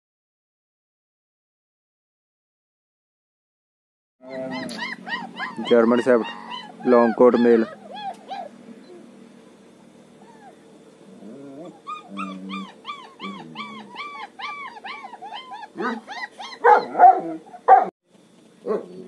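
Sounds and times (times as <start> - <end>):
puppy whining and yelping: 4.2 - 9.1, 10.2 - 10.6, 11.2 - 17.9
puppy yapping: 4.2 - 9.1, 10.2 - 10.6, 11.2 - 17.9.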